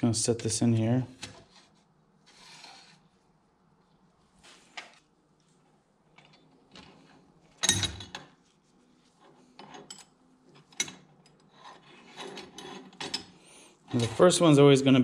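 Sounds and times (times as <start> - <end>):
metal tools scraping and clinking: 9.2 - 14.4.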